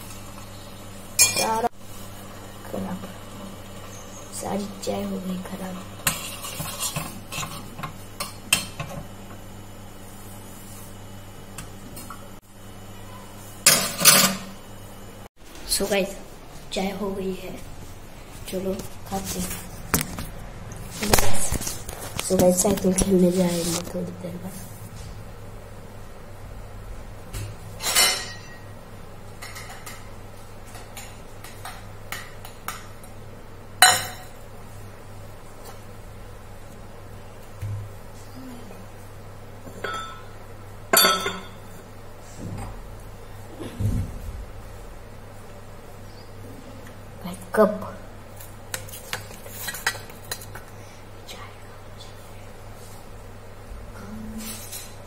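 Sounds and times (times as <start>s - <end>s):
kitchen utensils and cups clinking: 1.2s - 1.6s, 40.9s - 41.6s
metal pots clanging: 39.8s - 40.3s, 40.9s - 41.6s.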